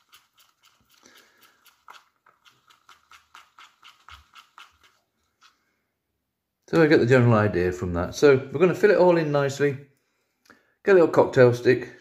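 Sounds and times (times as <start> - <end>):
spoon scraping plastic cup: 0.0 - 5.6.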